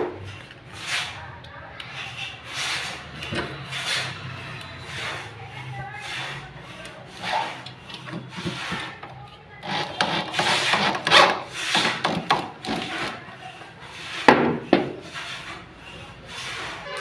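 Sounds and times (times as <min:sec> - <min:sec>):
electric drill driving screws: 0:09.6 - 0:13.1.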